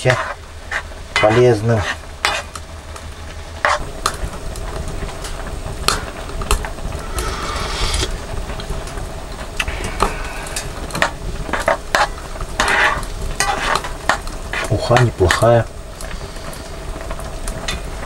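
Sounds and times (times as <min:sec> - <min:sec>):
low hum: 0:02.0 - 0:13.3.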